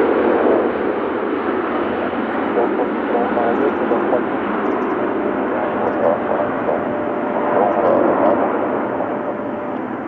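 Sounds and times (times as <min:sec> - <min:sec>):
faint radio voices: 0:01.7 - 0:10.0
radio static: 0:01.7 - 0:10.0
thin steady tone: 0:02.0 - 0:10.0.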